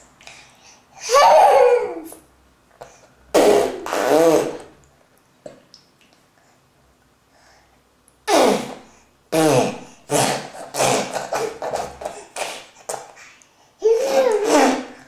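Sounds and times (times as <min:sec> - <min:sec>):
baby squealing and babbling: 0:01.0 - 0:02.2, 0:13.8 - 0:15.0
baby crying: 0:13.8 - 0:15.0.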